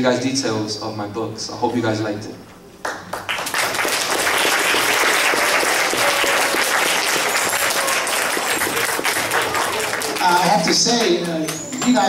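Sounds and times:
children applauding: 0:02.8 - 0:12.0.

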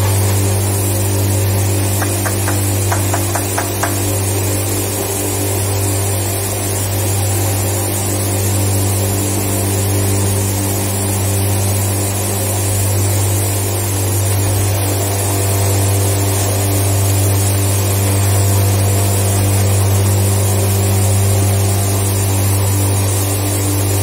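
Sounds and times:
constant rushing noise: 0:00.0 - 0:14.9
factory machinery humming: 0:00.0 - 0:24.0.

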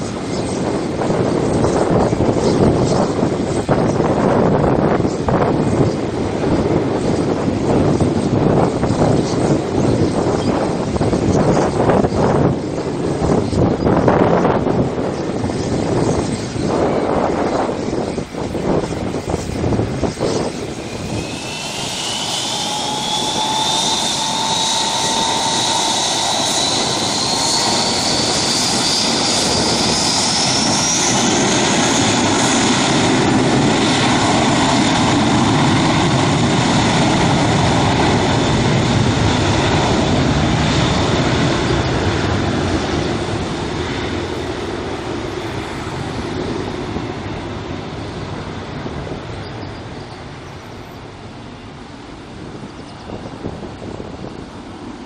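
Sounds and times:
aircraft turbine engine whine: 0:00.0 - 0:55.0.

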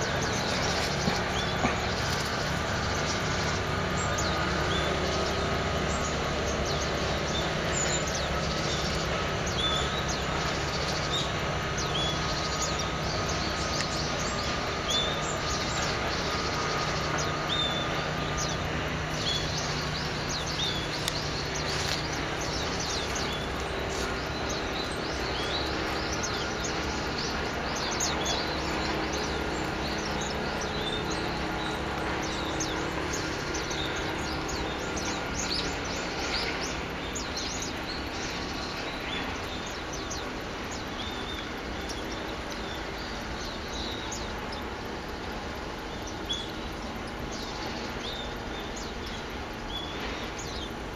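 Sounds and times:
songbirds chirping: 0:00.0 - 0:50.9
steady background hum: 0:00.0 - 0:50.9.

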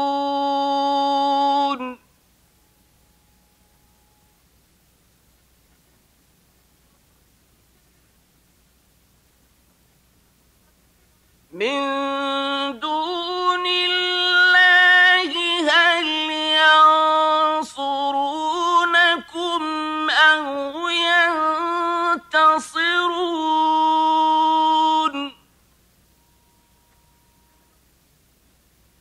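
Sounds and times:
man chanting recitation: 0:00.0 - 0:02.1, 0:11.6 - 0:25.4.

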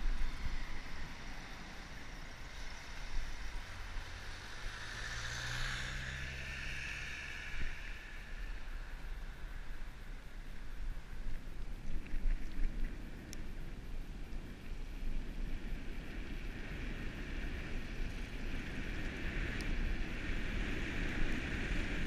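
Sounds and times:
car passing on wet road: 0:00.0 - 0:11.2
wind rumble on microphone: 0:00.0 - 0:22.0.

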